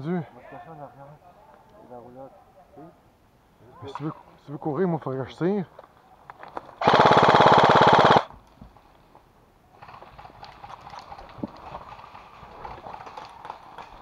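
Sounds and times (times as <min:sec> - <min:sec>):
airsoft rifle full-auto burst: 0:06.8 - 0:08.3.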